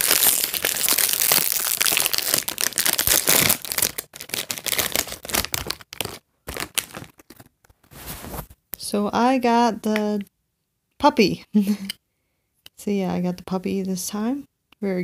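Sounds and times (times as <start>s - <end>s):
packaging wrapper crinkling: 0.0s - 8.4s.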